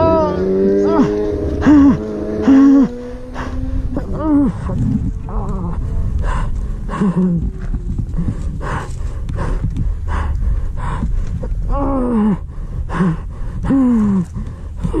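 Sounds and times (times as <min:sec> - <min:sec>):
person groaning in pain: 0:00.0 - 0:06.0, 0:11.6 - 0:13.1
person gasping for breath: 0:01.6 - 0:15.0.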